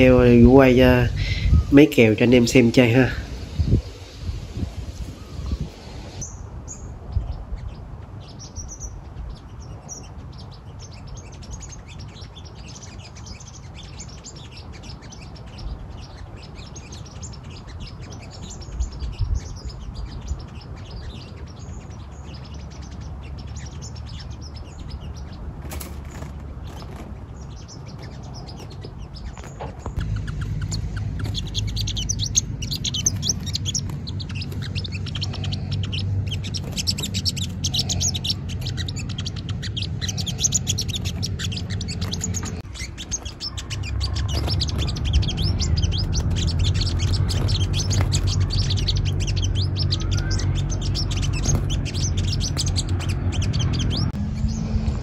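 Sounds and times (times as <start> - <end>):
birds chirping: 0.0 - 55.0
steady low hum: 16.4 - 55.0.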